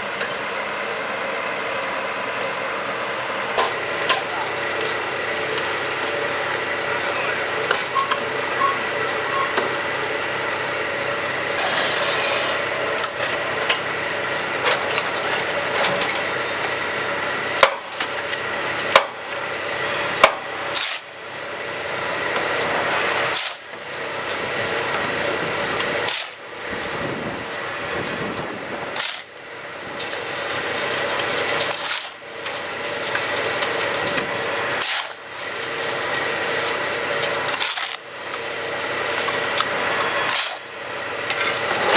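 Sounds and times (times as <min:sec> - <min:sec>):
machine hum and rattle: 0:00.0 - 0:41.9.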